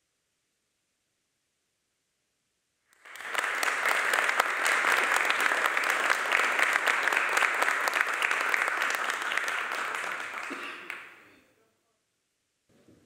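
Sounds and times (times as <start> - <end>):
audience applauding: 3.0 - 11.4.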